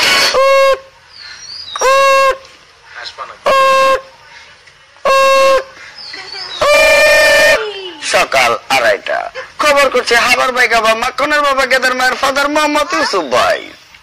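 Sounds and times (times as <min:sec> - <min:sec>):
horn blasts: 0:00.2 - 0:01.0, 0:01.8 - 0:02.5, 0:03.4 - 0:04.1, 0:05.0 - 0:05.8, 0:06.6 - 0:07.7.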